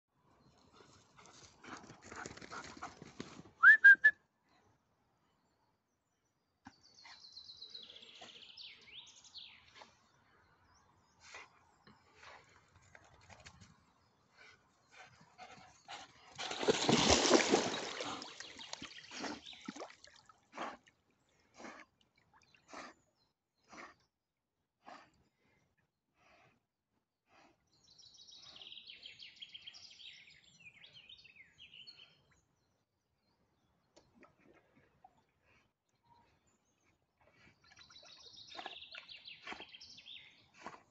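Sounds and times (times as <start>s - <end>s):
rising whistle-like call: 3.6s - 4.2s
dog swimming splashes: 16.1s - 20.8s
rush of water splashing: 16.4s - 20.2s.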